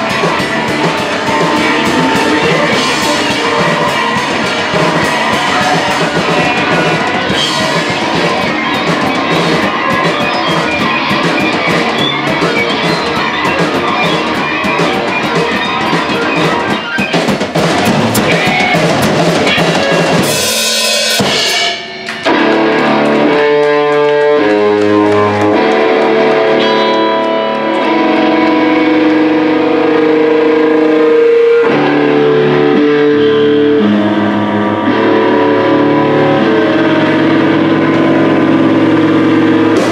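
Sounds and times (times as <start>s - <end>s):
live rock band playing: 0.0s - 39.9s.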